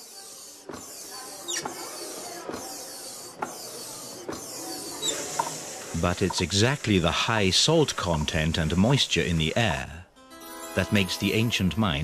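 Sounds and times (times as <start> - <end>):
steady high hiss: 5.3 - 12.0.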